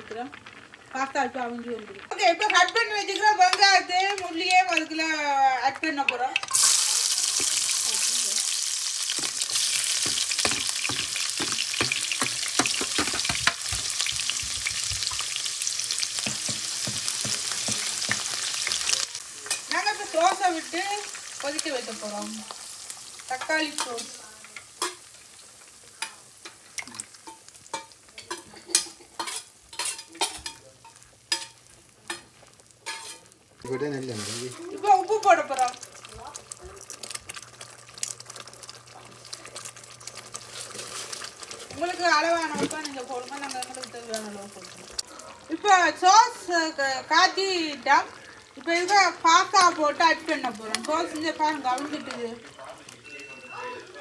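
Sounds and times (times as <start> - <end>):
onion sizzling in hot oil: 0.0 - 54.0
stirring clicks and taps: 9.2 - 15.4, 16.2 - 19.7.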